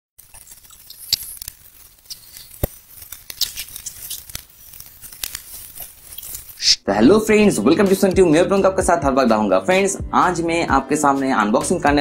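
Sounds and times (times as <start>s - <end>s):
plastic and bubble wrap crinkling: 0.2s - 6.8s.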